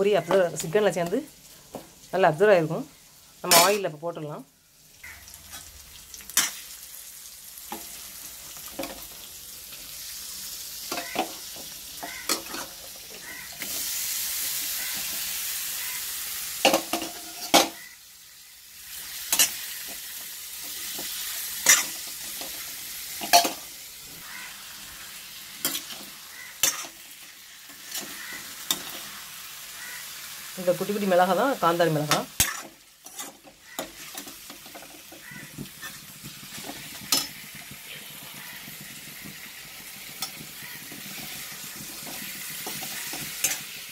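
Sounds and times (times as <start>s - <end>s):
chicken sizzling in a pan: 0.0s - 43.9s
metal spatula scraping a pan: 3.5s - 3.9s, 10.8s - 17.8s, 19.0s - 24.5s, 25.5s - 29.2s, 32.1s - 43.9s.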